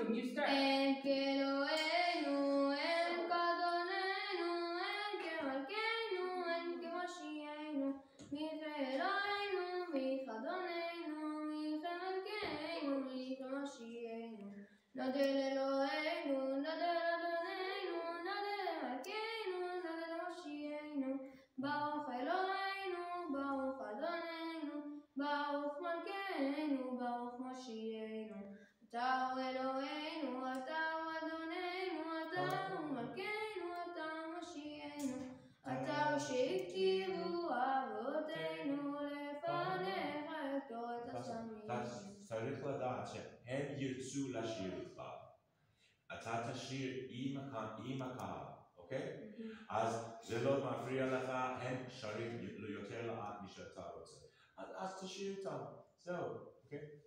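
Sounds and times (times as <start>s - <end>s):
boy chanting prayers: 31.9s - 33.2s, 35.0s - 45.0s.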